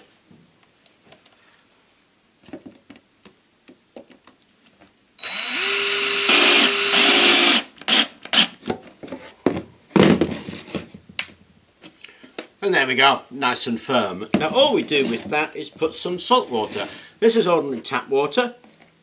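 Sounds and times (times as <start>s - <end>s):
cordless drill motor spinning: 5.2s - 8.5s.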